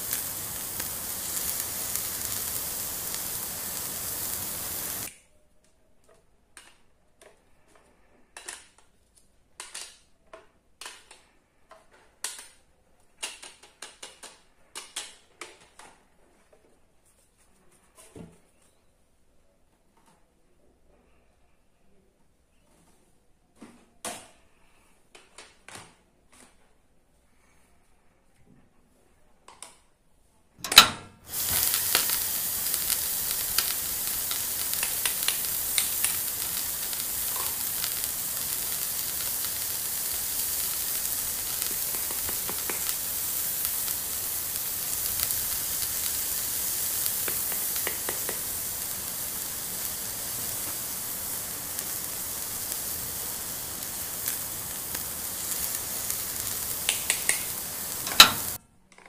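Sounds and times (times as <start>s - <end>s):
frying sizzle: 0.0s - 5.1s, 30.8s - 58.6s.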